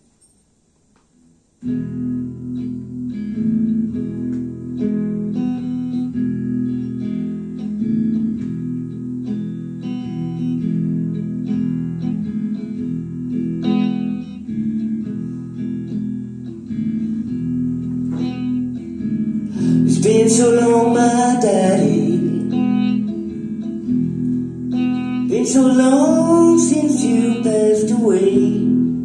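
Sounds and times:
solo electric guitar: 1.6 - 29.0.

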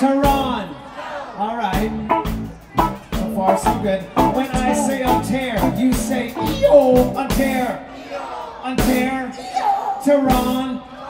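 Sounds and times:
live band playing: 1.8 - 7.8
person singing: 3.5 - 7.1.

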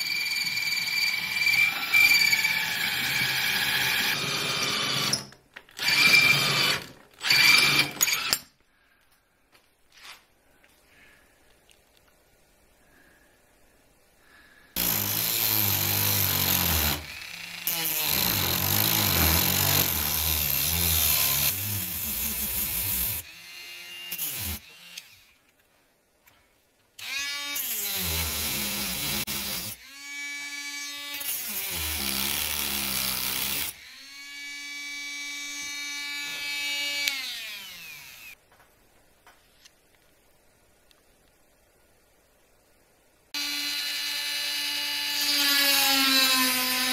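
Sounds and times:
power tool grinding antler: 14.8 - 25.3.

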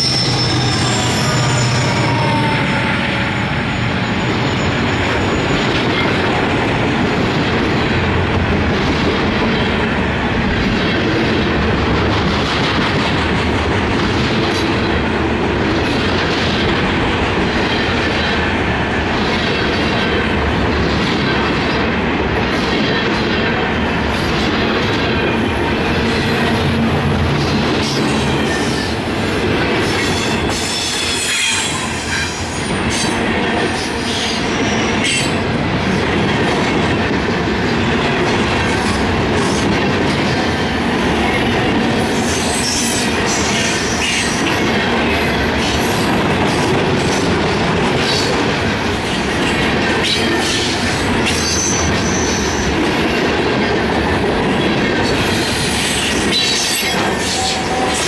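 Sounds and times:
high-pitched wheel squeal: 0.0 - 5.7
train wheels rumbling on rail: 0.0 - 58.0.

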